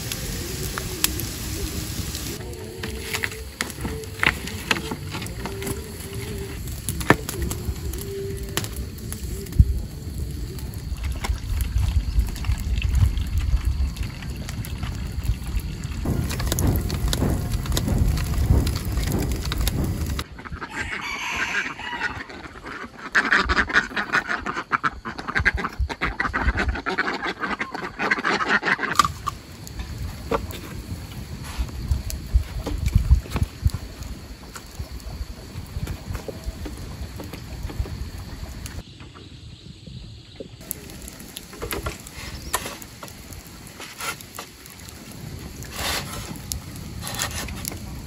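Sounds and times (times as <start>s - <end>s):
wood fire crackling: 0.0s - 20.3s, 28.9s - 38.8s, 40.6s - 48.0s
farm fowl chattering calls: 20.2s - 29.0s.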